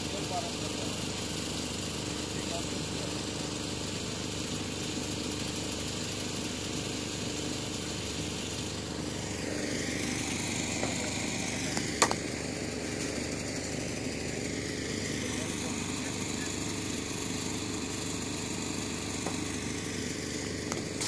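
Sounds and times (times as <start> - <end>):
engine-like hum: 0.0 - 21.0
rising and falling whine: 8.2 - 17.1.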